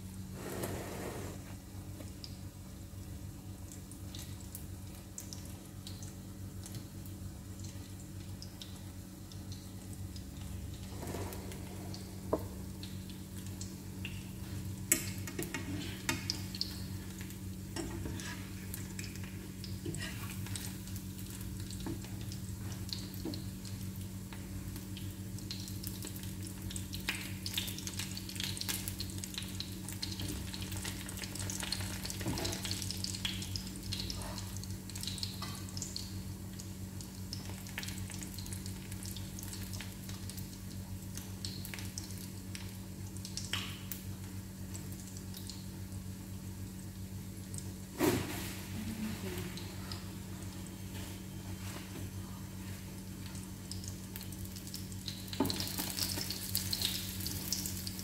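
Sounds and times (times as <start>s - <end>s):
patties sizzling in a pan: 12.1s - 49.0s, 52.8s - 58.0s.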